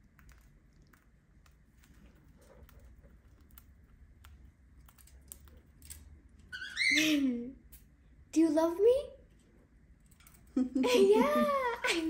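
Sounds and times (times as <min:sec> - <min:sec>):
bird beak cracking seeds: 0:00.0 - 0:06.1.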